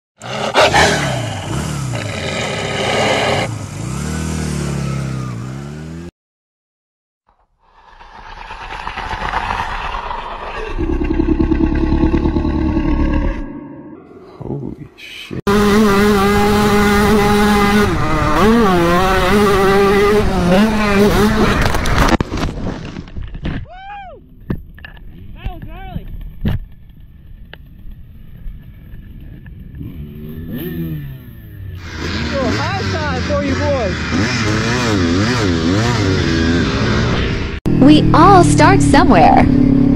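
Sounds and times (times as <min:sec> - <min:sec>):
motorcycle engine revving: 0:00.2 - 0:06.1, 0:07.8 - 0:14.0, 0:15.5 - 0:22.2, 0:27.3 - 0:39.9.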